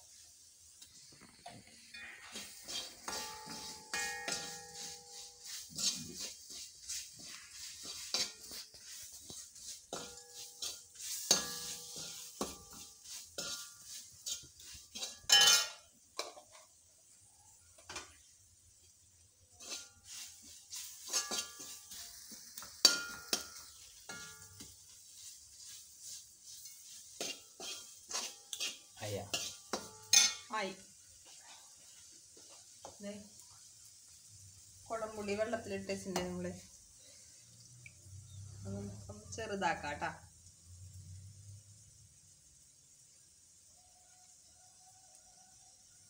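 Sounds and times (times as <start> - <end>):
masala sizzling: 0.0 - 46.0
metal spatula clinking on pan: 1.9 - 16.7, 19.6 - 20.2, 21.0 - 24.9, 26.5 - 30.6.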